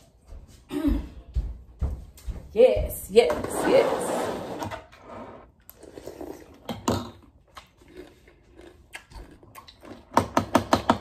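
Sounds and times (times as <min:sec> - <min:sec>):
crunchy cereal eating: 0:05.7 - 0:10.2.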